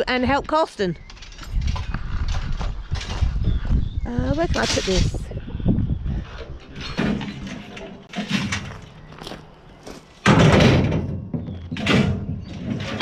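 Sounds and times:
metal pipes clattering onto trailer: 0:06.7 - 0:08.9, 0:10.2 - 0:13.0.

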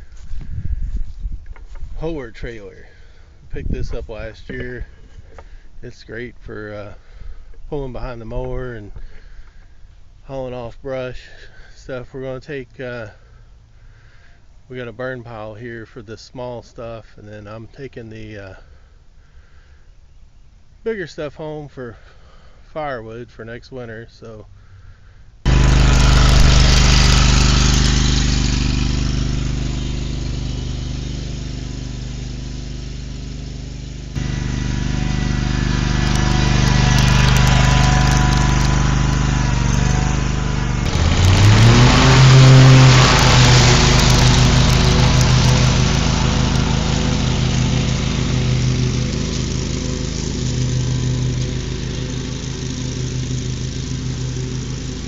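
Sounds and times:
mower engine running: 0:25.5 - 0:55.0.

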